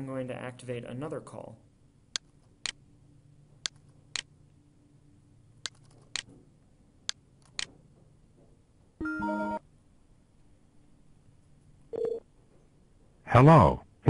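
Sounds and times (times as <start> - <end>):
computer mouse clicking: 2.1 - 2.8, 3.6 - 4.3, 5.6 - 6.3, 7.0 - 7.7
electronic call tone: 11.9 - 12.2.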